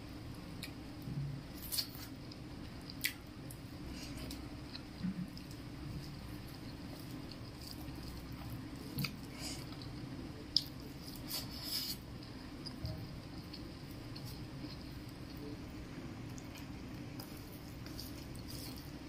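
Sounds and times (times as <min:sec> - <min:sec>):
chewing with full mouth: 0:01.5 - 0:15.4.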